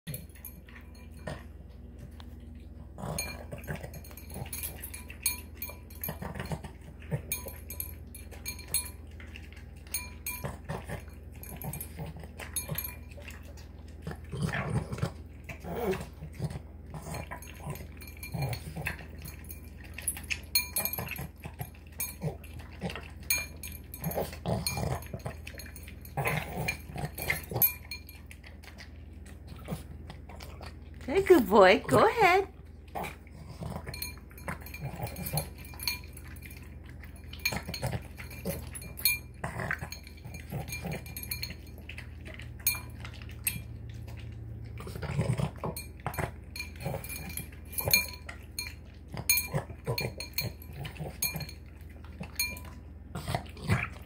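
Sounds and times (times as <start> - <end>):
dog snorting and snarfing: 14.0 - 19.4, 24.0 - 27.8, 32.9 - 36.0, 37.4 - 41.3, 44.8 - 48.2, 52.2 - 54.0.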